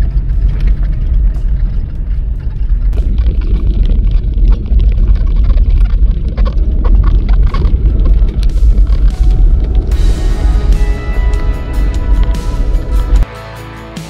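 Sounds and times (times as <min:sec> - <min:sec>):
stones ticking: 0:00.0 - 0:10.6
vehicle rumbling on gravel: 0:00.0 - 0:13.3.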